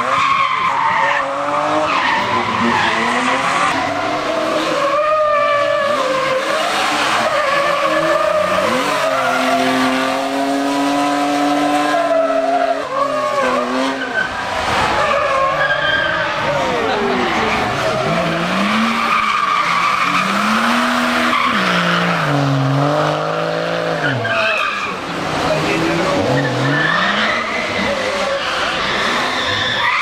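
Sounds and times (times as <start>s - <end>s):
car engines revving: 0.0s - 30.0s
tyres screeching: 0.0s - 30.0s
car passing at high revs: 6.3s - 12.0s.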